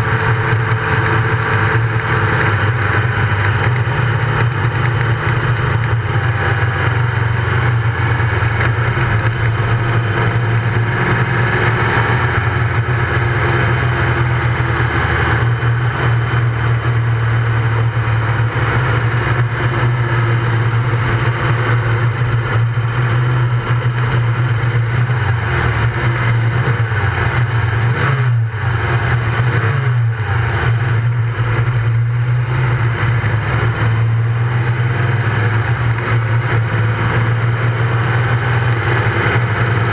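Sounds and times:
buggy engine running hard: 0:00.0 - 0:39.9.

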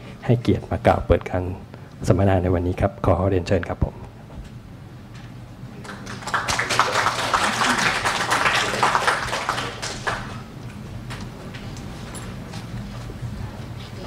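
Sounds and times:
small audience applauding: 0:05.8 - 0:10.5.

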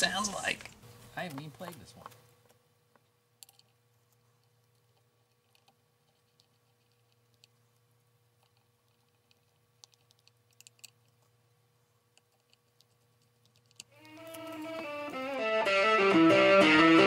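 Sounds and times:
low steady hum: 0:00.0 - 0:15.7.

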